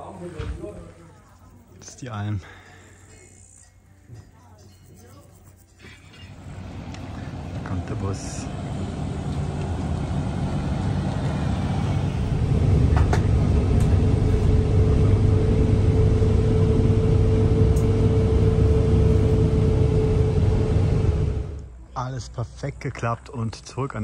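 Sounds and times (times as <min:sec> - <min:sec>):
bus engine rumble: 0:06.1 - 0:21.8
steady whine: 0:06.3 - 0:21.8.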